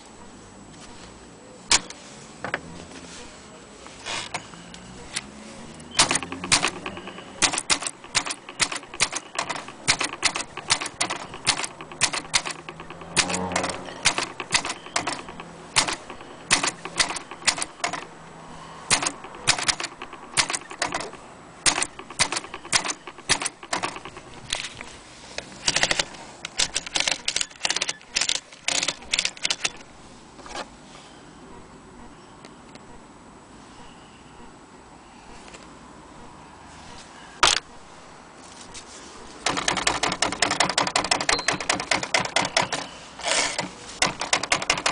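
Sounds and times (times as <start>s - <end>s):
manual typewriter typing: 5.1s - 18.2s, 18.8s - 24.8s, 25.6s - 29.9s, 39.4s - 44.9s.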